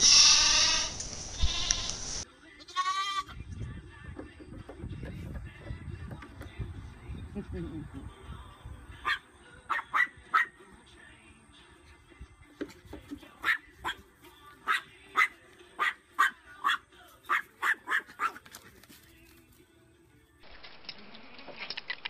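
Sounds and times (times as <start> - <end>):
small dog yapping: 14.7 - 18.5.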